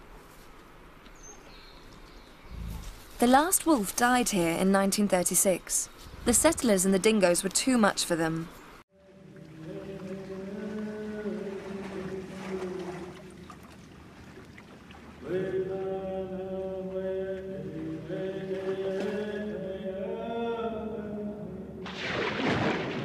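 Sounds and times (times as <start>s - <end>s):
chanting voices in music: 9.0s - 13.1s, 15.2s - 21.8s.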